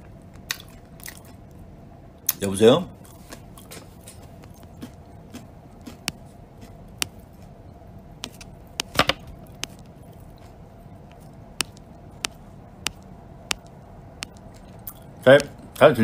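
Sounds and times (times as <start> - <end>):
steady low hum: 0.0 - 16.0
short sharp clicks and taps: 11.6 - 14.6.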